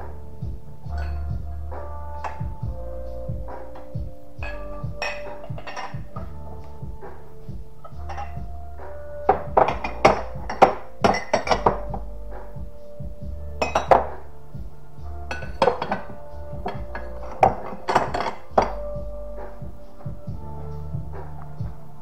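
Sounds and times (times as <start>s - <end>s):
background music: 0.0s - 22.0s
dishes and glassware clinking: 1.0s - 1.3s, 4.4s - 6.4s, 7.8s - 8.4s, 9.3s - 12.0s, 13.6s - 14.2s, 15.3s - 18.8s.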